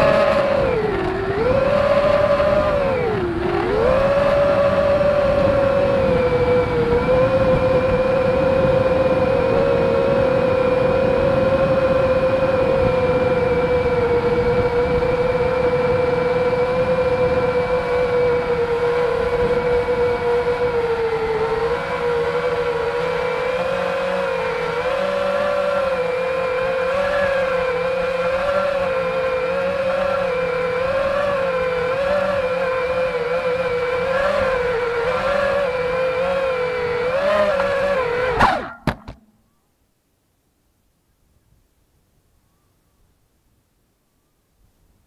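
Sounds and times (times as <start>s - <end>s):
quadcopter motors whining: 0.0s - 39.2s
propellers striking grass: 37.4s - 39.4s.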